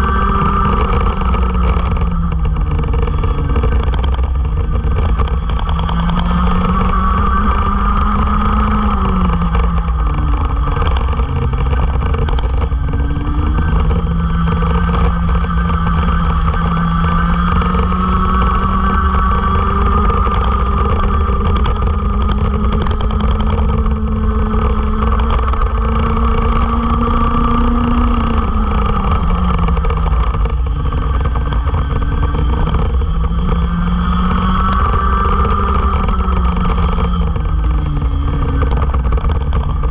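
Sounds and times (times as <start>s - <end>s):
kart engine at high revs: 0.0s - 39.9s.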